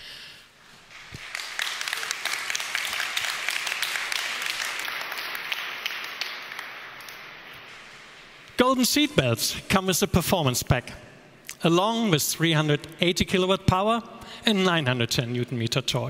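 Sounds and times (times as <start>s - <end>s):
audience applauding: 0.7s - 8.4s.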